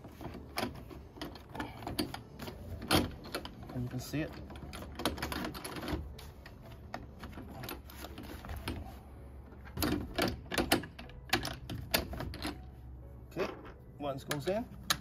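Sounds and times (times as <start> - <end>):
plastic clamp clicks and taps on metal rail: 14.3 - 15.0.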